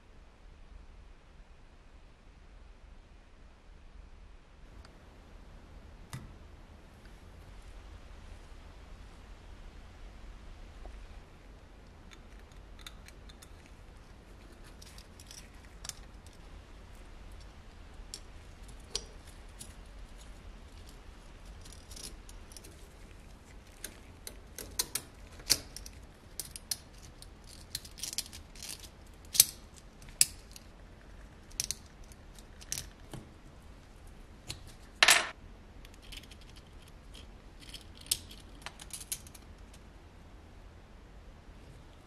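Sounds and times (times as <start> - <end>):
small metal parts clicking: 14.5 - 16.4, 18.1 - 23.0, 23.6 - 30.7, 31.5 - 33.2, 34.5 - 39.5.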